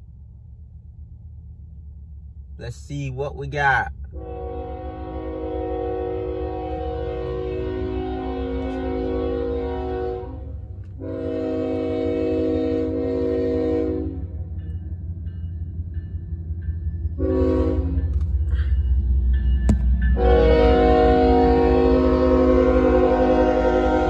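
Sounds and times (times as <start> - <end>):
diesel engine rumble: 0.0 - 12.0
locomotive air horn blasts: 4.1 - 14.4, 17.2 - 18.2, 20.1 - 24.0.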